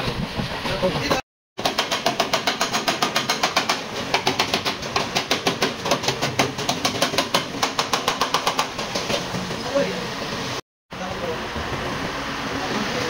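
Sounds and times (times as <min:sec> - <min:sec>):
hammer striking steel bar: 0:01.6 - 0:08.8.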